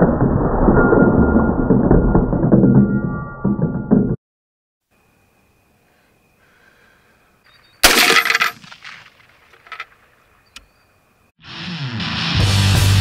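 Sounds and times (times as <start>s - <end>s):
rifle shot: 7.8s - 9.3s
rock music: 11.4s - 13.0s.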